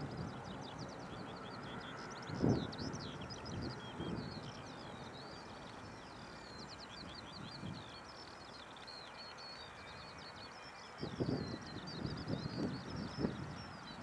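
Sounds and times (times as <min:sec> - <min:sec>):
small birds singing: 0:00.0 - 0:14.0.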